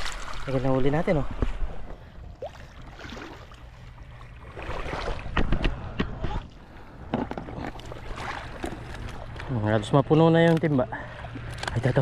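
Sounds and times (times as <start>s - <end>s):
splashes in shallow water: 0.0s - 0.9s, 2.4s - 5.4s, 7.7s - 9.6s.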